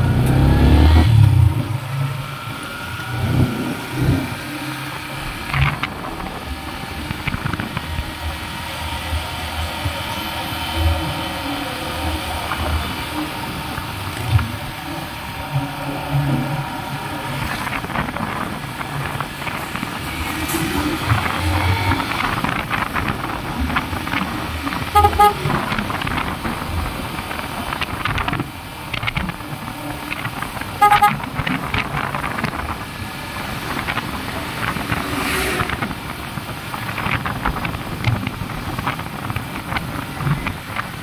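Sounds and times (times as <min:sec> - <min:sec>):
motorcycle engine: 0:00.0 - 0:41.0
motorcycle horn tooting: 0:24.9 - 0:25.7, 0:30.8 - 0:31.4.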